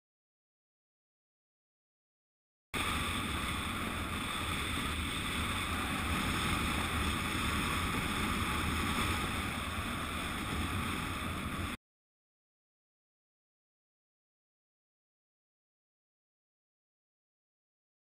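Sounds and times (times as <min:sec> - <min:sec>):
wind rushing over microphone: 0:02.8 - 0:11.8.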